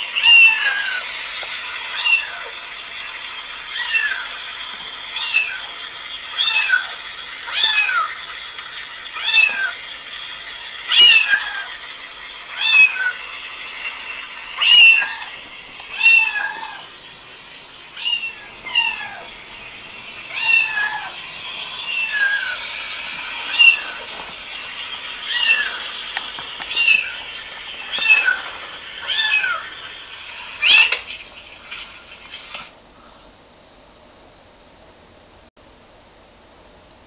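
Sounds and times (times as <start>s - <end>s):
recorded cat meows from speaker: 18.0s - 19.3s, 20.3s - 21.1s, 25.2s - 25.9s.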